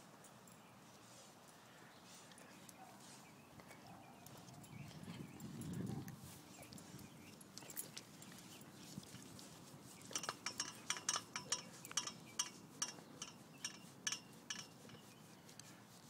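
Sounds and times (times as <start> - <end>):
light metallic clinks: 4.2 - 15.8.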